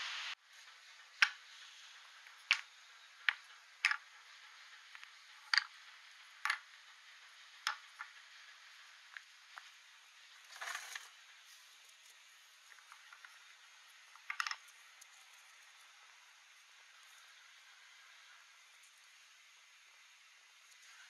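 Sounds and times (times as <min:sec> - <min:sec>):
wooden clicks on a tabletop: 0:02.5 - 0:04.0, 0:05.0 - 0:05.7, 0:06.4 - 0:06.6, 0:14.2 - 0:14.7.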